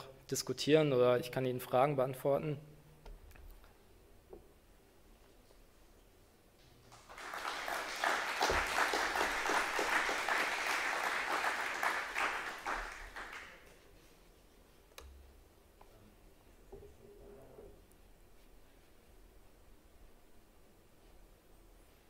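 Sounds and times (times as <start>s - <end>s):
audience applauding: 6.8s - 13.8s.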